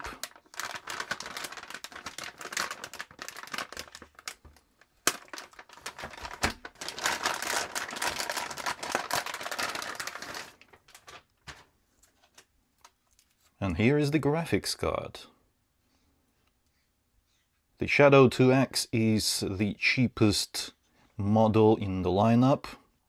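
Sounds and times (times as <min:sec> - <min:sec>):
metallic bag crinkling: 0:00.0 - 0:12.4.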